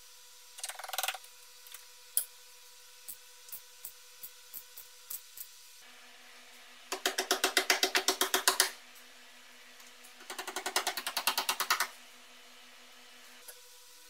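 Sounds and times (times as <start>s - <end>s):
chipping hammer tapping on metal: 6.9s - 8.8s.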